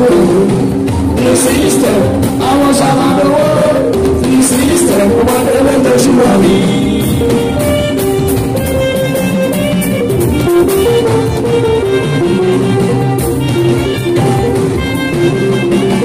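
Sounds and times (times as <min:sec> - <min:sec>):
person singing: 0:00.0 - 0:08.2
held instrumental notes: 0:00.0 - 0:16.0
percussion beat: 0:00.0 - 0:16.0.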